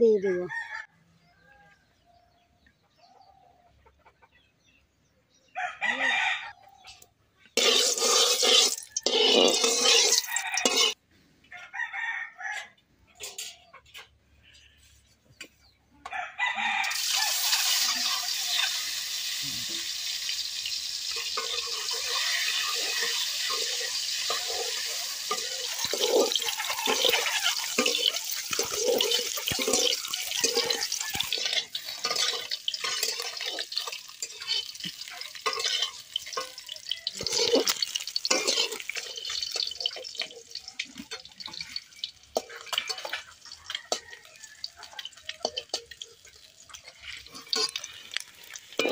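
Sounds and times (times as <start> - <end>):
eggs sizzling in hot oil: 7.6 - 11.0, 16.7 - 48.9
metal spatula in wok: 7.6 - 11.0, 13.2 - 14.0, 17.0 - 48.9
oil crackling and popping: 7.6 - 11.0, 16.9 - 48.9.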